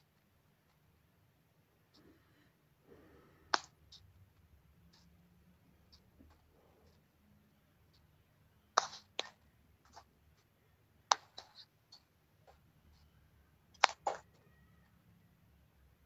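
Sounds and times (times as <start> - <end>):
faint low hum: 0.0 - 16.0
sharp clicks and taps: 3.5 - 5.1, 8.8 - 12.6, 13.7 - 14.4.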